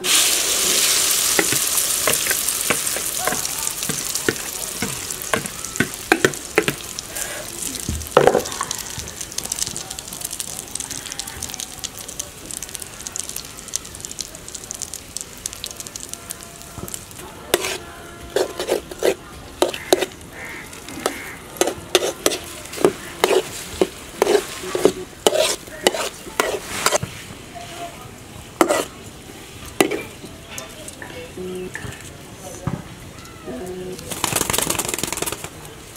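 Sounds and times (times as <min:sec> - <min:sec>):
metal spatula scraping pan: 0:00.0 - 0:07.6, 0:17.5 - 0:27.0, 0:28.6 - 0:28.9
eggs sizzling in oil: 0:00.0 - 0:35.3.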